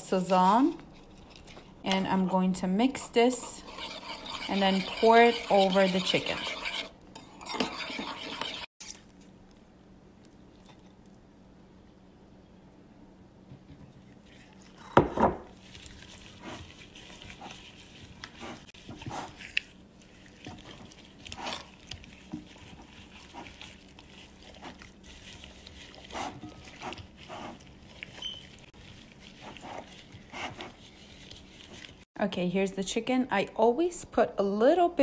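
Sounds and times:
squelching marinade into chicken: 0:15.5 - 0:32.1.

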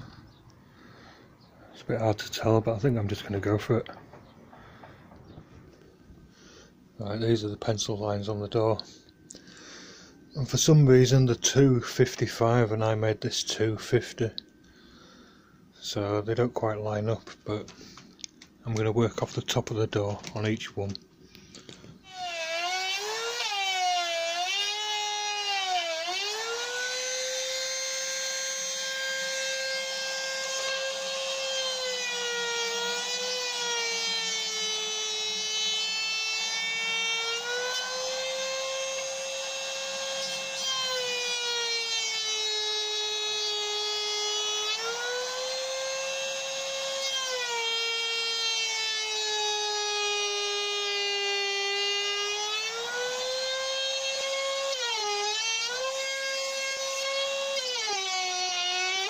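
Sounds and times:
router cutting wood: 0:22.0 - 0:59.0.

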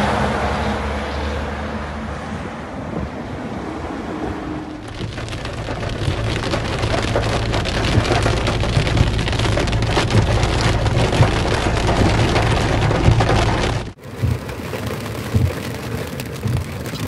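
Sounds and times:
car hum on road: 0:00.0 - 0:17.0
rain pattering on car: 0:04.7 - 0:17.0.

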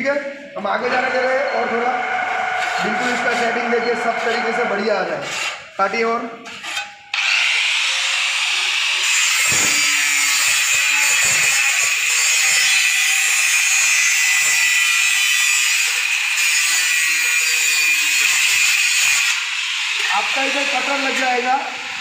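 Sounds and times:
angle grinder cutting steel: 0:00.7 - 0:05.8, 0:06.7 - 0:22.0.

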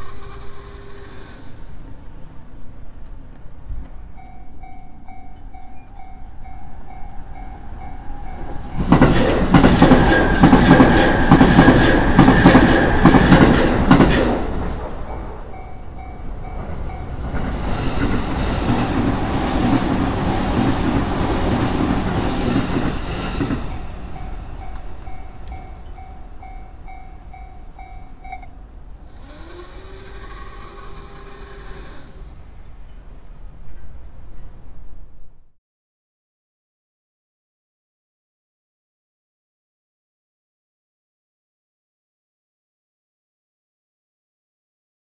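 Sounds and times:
level crossing warning bell: 0:04.0 - 0:09.1, 0:15.0 - 0:17.6, 0:19.7 - 0:21.2, 0:22.8 - 0:29.0
train wheels clicking: 0:07.0 - 0:28.5.

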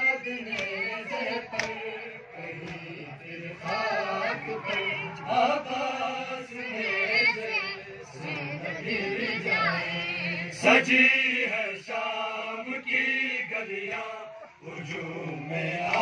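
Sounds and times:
men chanting a lament: 0:00.0 - 0:16.0
chest-beating slaps: 0:00.5 - 0:00.9, 0:01.5 - 0:01.9, 0:02.6 - 0:02.9.

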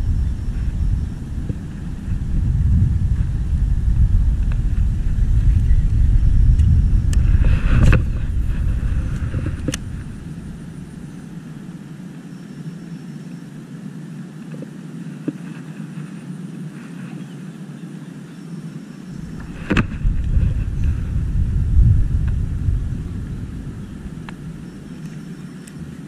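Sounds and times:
wind buffeting microphone: 0:00.0 - 0:12.1, 0:19.0 - 0:26.0.

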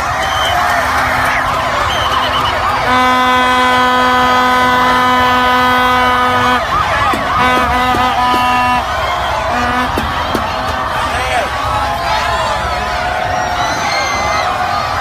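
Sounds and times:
huge crowd cheering and shouting: 0:00.0 - 0:15.0
horn holding a steady note: 0:02.6 - 0:10.9.

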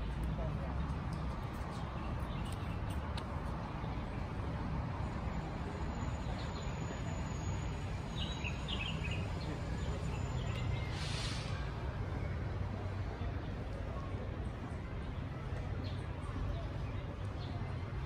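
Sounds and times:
brief hiss: 0:10.9 - 0:11.7.

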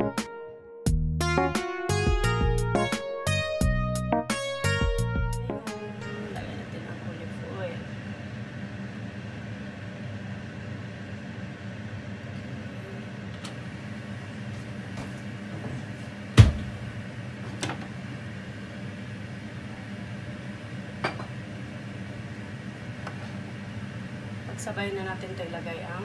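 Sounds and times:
low kitchen hum: 0:05.7 - 0:26.0.

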